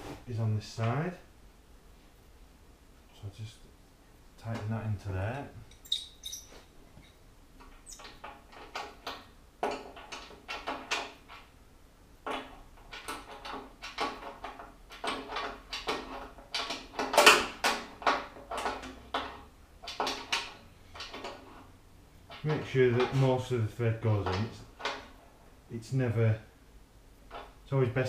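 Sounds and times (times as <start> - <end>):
metal clicking and scraping: 5.7 - 11.5, 12.2 - 25.2, 27.2 - 27.6.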